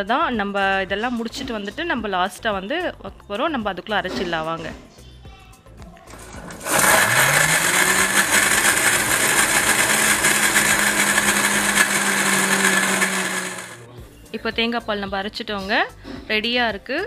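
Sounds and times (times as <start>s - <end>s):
mixer grinder motor running: 6.2s - 13.8s.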